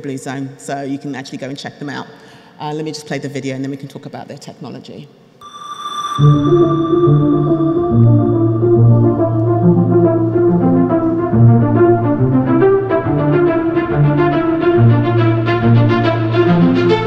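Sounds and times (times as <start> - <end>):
held low music notes: 6.2 - 17.0.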